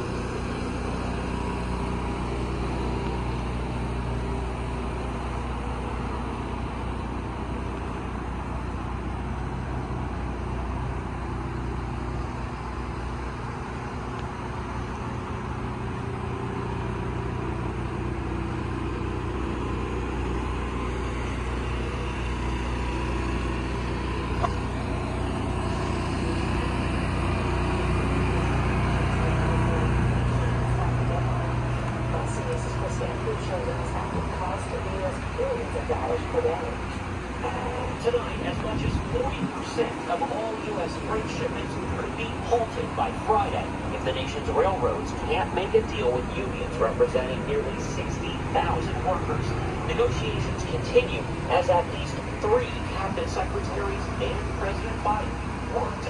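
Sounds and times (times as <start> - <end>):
engine idling hum: 0.0 - 56.0.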